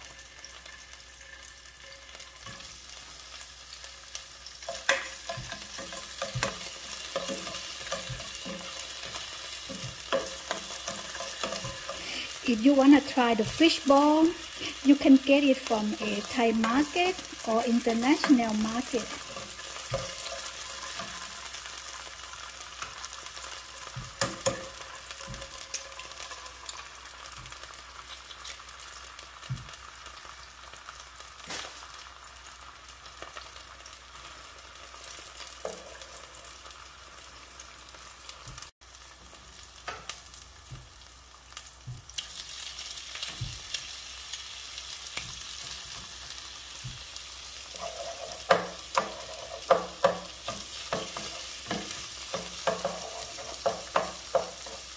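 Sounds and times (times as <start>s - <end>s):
food sizzling in hot oil: 0.0s - 54.9s
spatula knocking and scraping: 4.7s - 12.0s, 19.0s - 21.4s, 47.8s - 54.8s.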